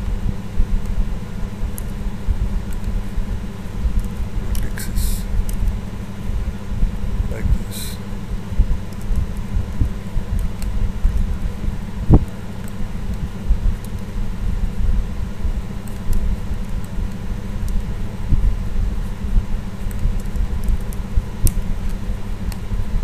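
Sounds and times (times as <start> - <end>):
low background rumble: 0.0 - 23.0.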